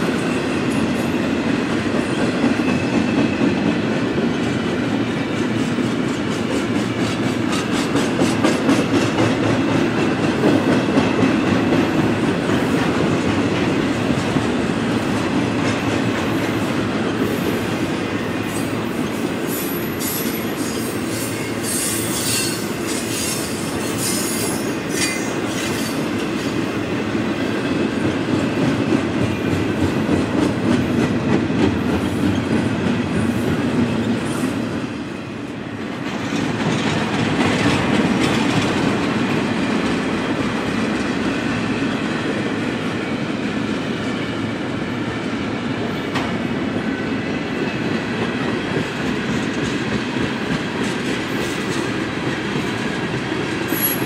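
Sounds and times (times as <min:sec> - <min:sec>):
freight train wheels rumbling: 0:00.0 - 0:54.0
high-pitched wheel squeals: 0:19.6 - 0:26.0.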